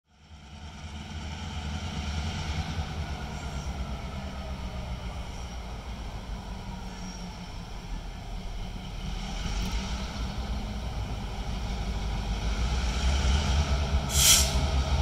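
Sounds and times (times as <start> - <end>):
diesel locomotive engine rumbling: 0.1 - 15.0.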